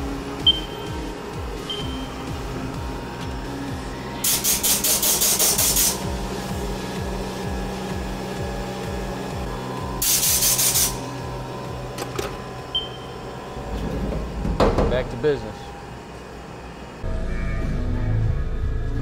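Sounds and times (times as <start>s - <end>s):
milling machine hum: 0.0s - 17.0s
harsh pulsing cutting hiss: 1.0s - 11.6s.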